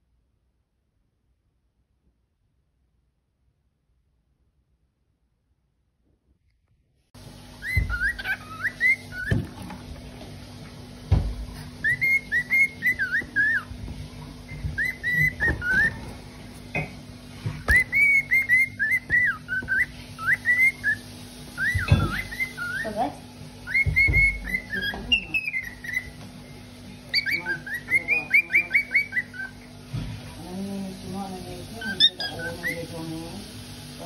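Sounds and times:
cockatiel whistling: 7.6s - 9.5s, 11.8s - 13.8s, 14.5s - 16.1s, 17.6s - 23.0s, 23.6s - 26.2s, 27.1s - 29.7s, 31.8s - 32.9s.

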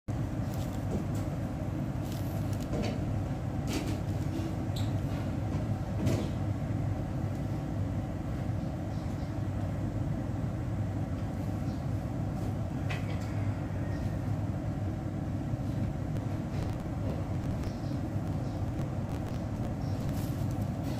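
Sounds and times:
low rumble: 16.1s - 20.7s.

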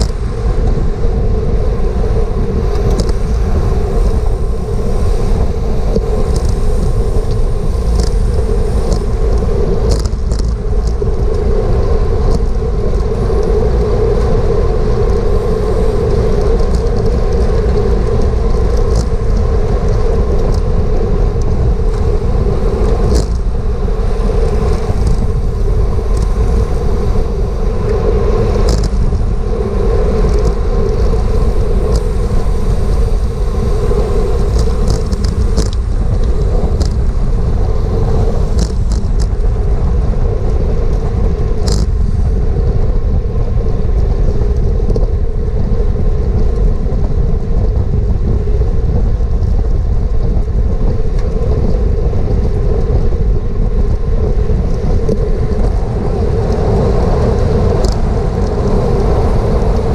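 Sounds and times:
wind rushing over microphone: 0.0s - 59.9s
faint ticks: 41.6s - 42.3s.

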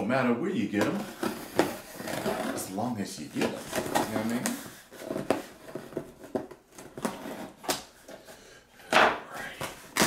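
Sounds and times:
cardboard rasping: 1.0s - 2.8s, 9.6s - 10.0s.

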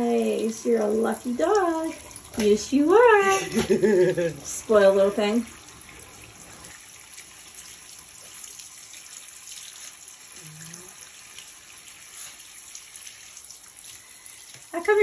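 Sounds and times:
shower head spraying water: 0.0s - 5.6s.

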